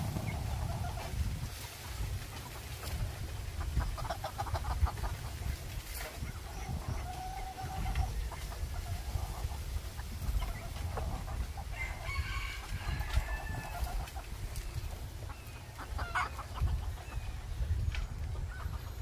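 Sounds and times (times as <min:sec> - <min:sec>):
wind buffeting microphone: 0:00.0 - 0:19.0
rooster crowing: 0:11.7 - 0:14.0.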